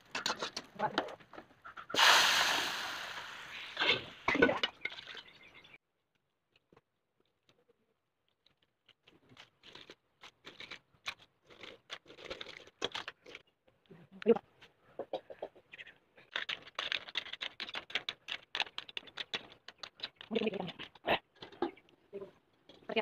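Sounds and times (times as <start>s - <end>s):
liquid sizzling in hot oil: 2.0s - 4.1s.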